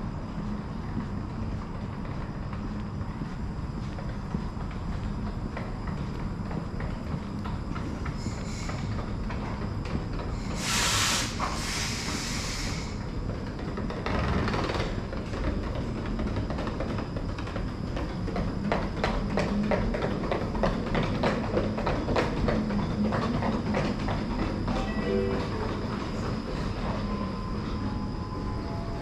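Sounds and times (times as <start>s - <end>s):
steady low hum: 0.0s - 10.6s
compressed air hissing: 10.6s - 13.0s.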